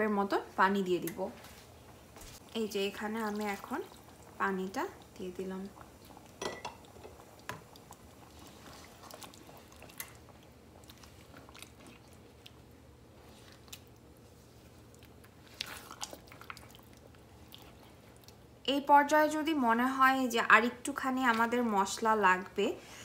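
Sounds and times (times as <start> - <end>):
wet squelching of stirred gravy: 2.4 - 6.3, 7.2 - 18.5.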